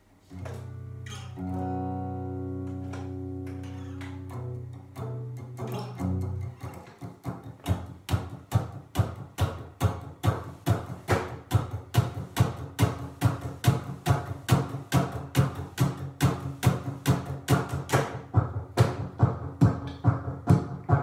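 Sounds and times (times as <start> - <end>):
low guitar notes ringing: 0.3 - 7.6
muted electric guitar strums: 0.3 - 21.0.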